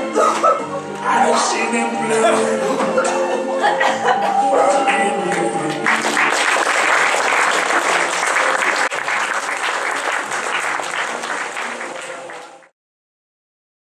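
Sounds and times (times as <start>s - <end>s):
audience applauding: 5.7s - 12.7s.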